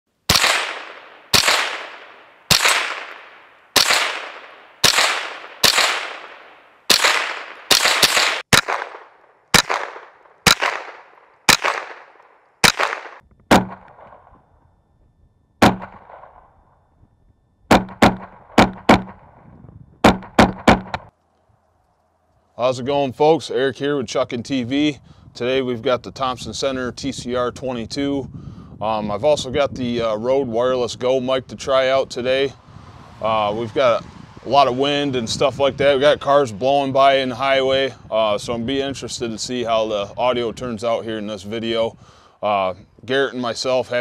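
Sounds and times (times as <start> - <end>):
rifle shots echoing: 0.3 - 14.4, 15.6 - 16.6, 17.7 - 19.4, 20.0 - 21.1.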